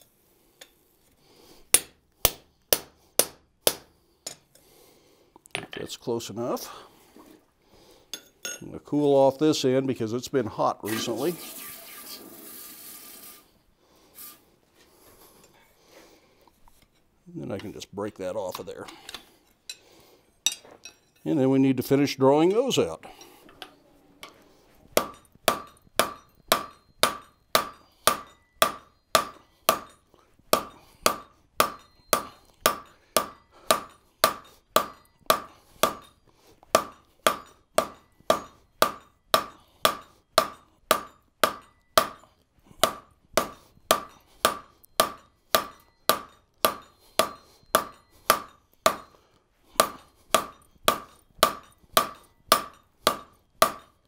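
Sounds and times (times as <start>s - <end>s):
hammer striking steel on anvil: 1.7s - 4.6s, 25.0s - 49.2s, 49.8s - 54.0s.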